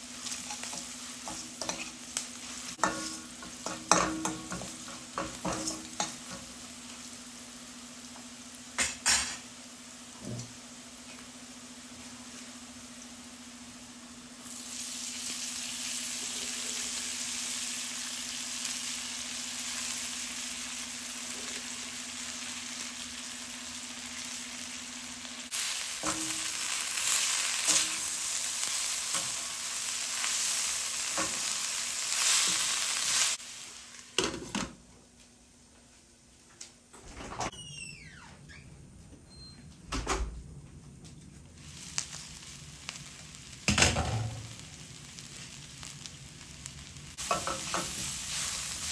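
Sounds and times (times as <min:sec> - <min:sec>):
food sizzling in hot oil: 0:00.0 - 0:34.6, 0:41.6 - 0:48.9
utensil stirring and tapping pan: 0:00.4 - 0:02.0, 0:02.7 - 0:06.6, 0:47.2 - 0:48.2.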